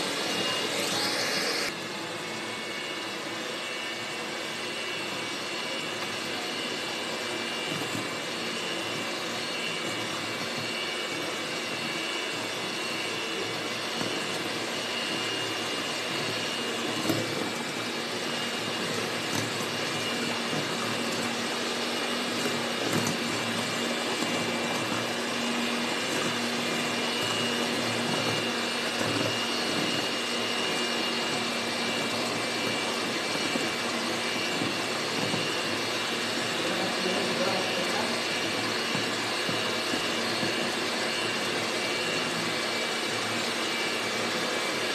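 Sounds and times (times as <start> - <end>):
electric hand mixer whine: 0.0 - 44.9
beaters whisking batter: 4.8 - 44.1.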